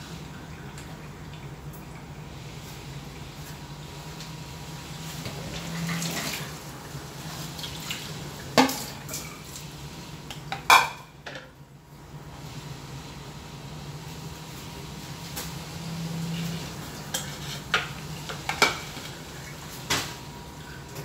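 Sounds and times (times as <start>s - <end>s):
dishes clattering: 10.6s - 11.5s, 17.1s - 19.1s.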